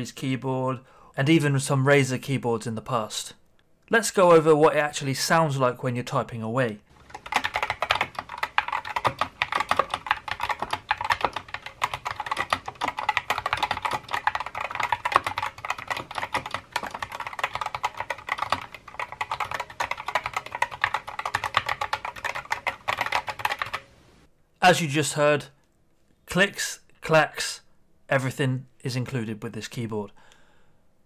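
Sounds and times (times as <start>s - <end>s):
fast mechanical keyboard typing: 6.9s - 23.9s.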